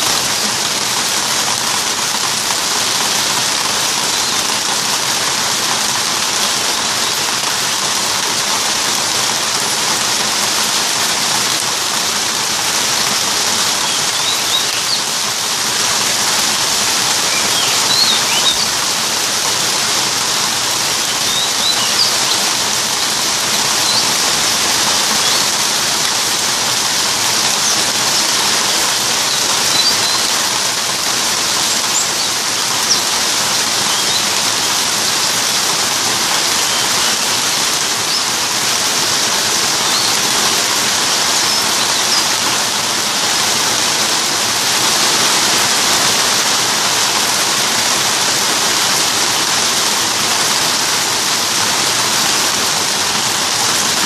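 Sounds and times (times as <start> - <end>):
steady rain falling: 0.0 - 54.0
faint high bird chirps: 13.7 - 15.1, 17.2 - 18.8, 21.0 - 25.6, 27.4 - 30.6, 31.4 - 35.6, 36.2 - 38.4, 39.5 - 42.8.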